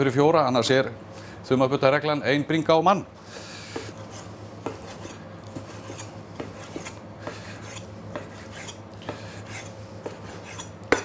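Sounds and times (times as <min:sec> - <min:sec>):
knife slicing raw meat: 0:03.8 - 0:11.0.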